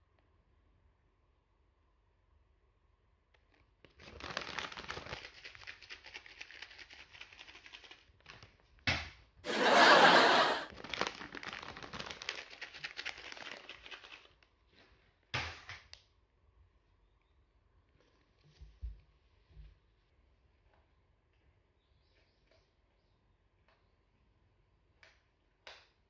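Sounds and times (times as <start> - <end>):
plastic packets crinkling: 4.0 - 7.9, 10.7 - 14.3.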